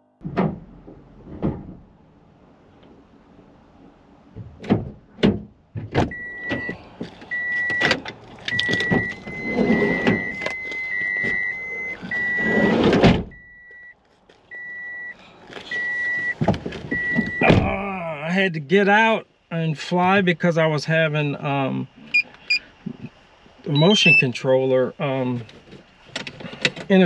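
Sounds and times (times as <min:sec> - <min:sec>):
car door warning chime beeps: 0:06.1 - 0:17.6, 0:23.7 - 0:24.3
rustling and handling noises: 0:13.6 - 0:14.6.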